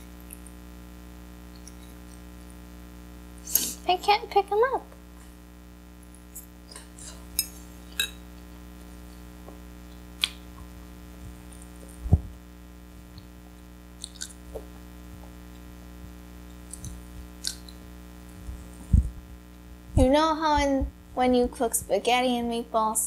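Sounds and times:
electrical hum: 0:00.0 - 0:23.0
person chewing: 0:09.9 - 0:12.0, 0:13.0 - 0:15.7, 0:16.4 - 0:18.9.

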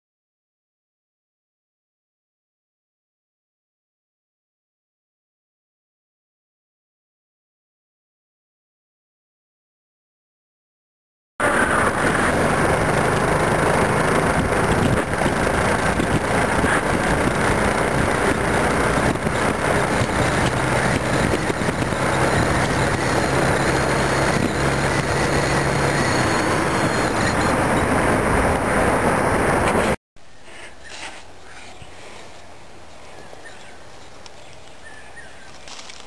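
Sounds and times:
faint motorcycle engine hum: 0:11.4 - 0:30.7
wind and road noise: 0:11.4 - 0:36.0.

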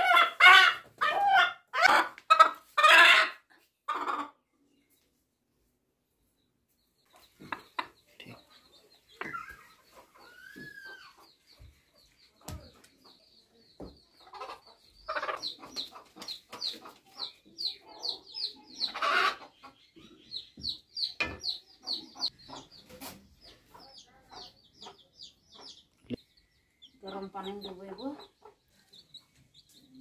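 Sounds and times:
rooster clucking and squawking: 0:00.0 - 0:04.4.

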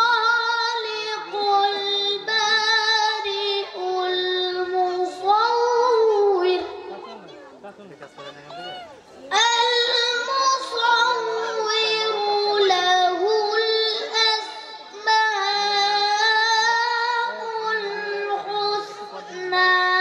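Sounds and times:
boy chanting into microphone: 0:00.0 - 0:07.0, 0:09.3 - 0:20.0.

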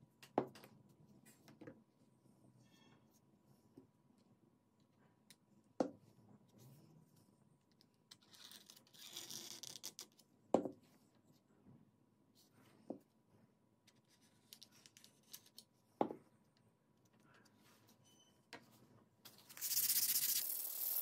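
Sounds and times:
scratchy rubbing: 0:19.5 - 0:21.0.

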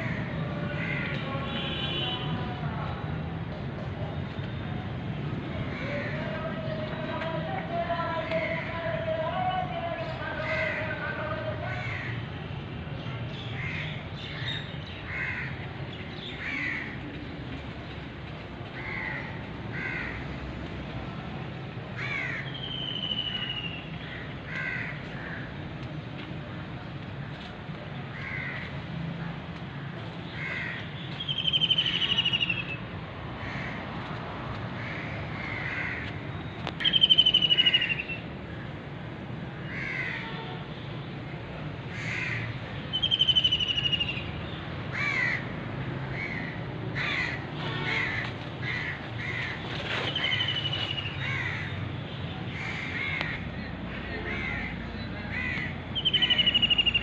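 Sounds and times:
crows cawing: 0:00.0 - 0:01.2, 0:11.7 - 0:12.2, 0:15.1 - 0:15.6, 0:16.4 - 0:17.0, 0:18.8 - 0:20.3, 0:22.0 - 0:22.6, 0:24.0 - 0:25.5, 0:28.1 - 0:28.7, 0:30.4 - 0:30.9, 0:33.4 - 0:33.8, 0:34.8 - 0:36.2, 0:39.6 - 0:40.3, 0:41.9 - 0:42.6, 0:44.9 - 0:45.5, 0:46.1 - 0:49.6, 0:50.2 - 0:51.8, 0:52.6 - 0:53.4, 0:54.2 - 0:56.8.

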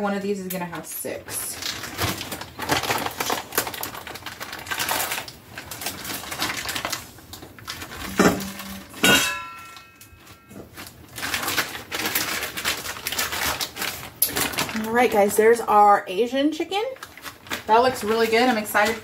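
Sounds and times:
kitchen clicks and rustling: 0:07.8 - 0:15.1
sharp ringing clink: 0:08.1 - 0:10.1.

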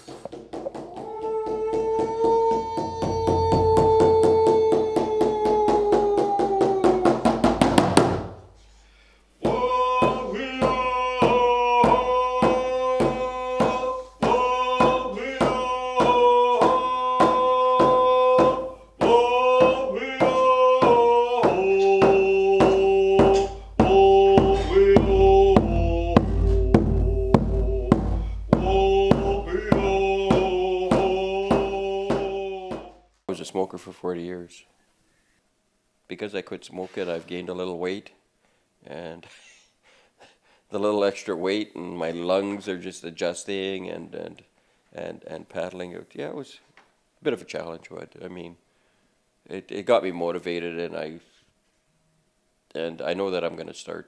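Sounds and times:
hand drum beating: 0:00.3 - 0:08.2, 0:09.5 - 0:33.0
singing long held notes: 0:00.9 - 0:07.2, 0:09.4 - 0:33.0.

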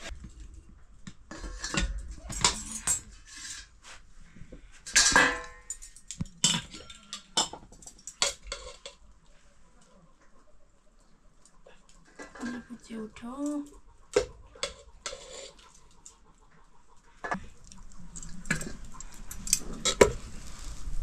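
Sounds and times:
metal pots clattering: 0:01.3 - 0:03.7, 0:04.8 - 0:09.0, 0:12.1 - 0:16.2.

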